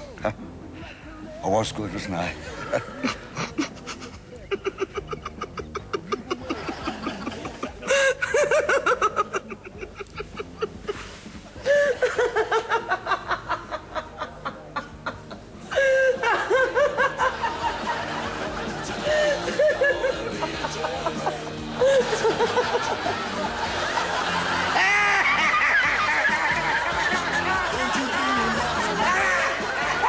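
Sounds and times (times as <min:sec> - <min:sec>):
person laughing: 0:18.8 - 0:23.3, 0:24.0 - 0:29.6.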